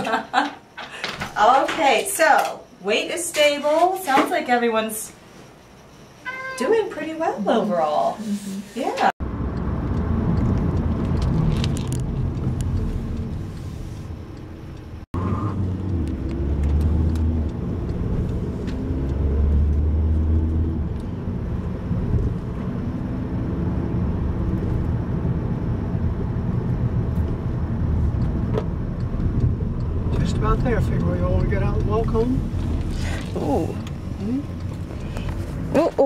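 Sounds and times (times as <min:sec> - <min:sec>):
road and engine rumble: 0:08.8 - 0:36.0.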